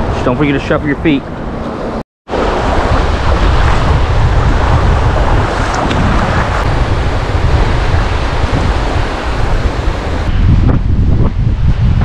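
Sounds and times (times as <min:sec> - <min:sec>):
small surf waves: 0:02.3 - 0:10.3
wind buffeting microphone: 0:02.3 - 0:12.0.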